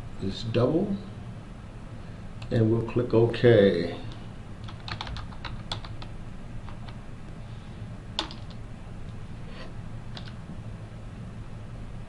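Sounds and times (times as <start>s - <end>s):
low steady hum: 0.0s - 12.0s
keystrokes on computer keyboard: 4.6s - 6.1s, 8.2s - 8.6s, 10.1s - 10.4s.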